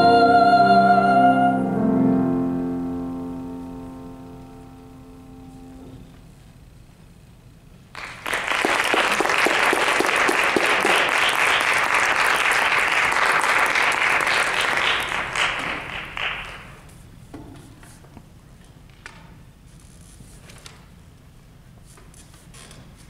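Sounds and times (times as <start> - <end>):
audience applause: 8.0 - 16.8.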